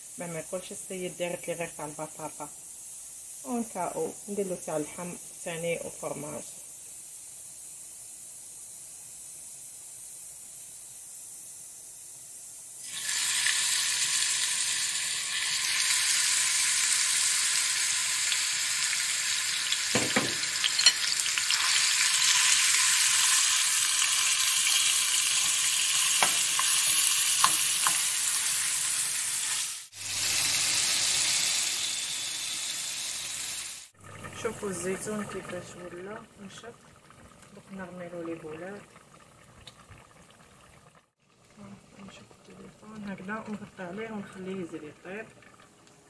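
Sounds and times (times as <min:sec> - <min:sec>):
meat sizzling in oil: 0:00.0 - 0:36.7.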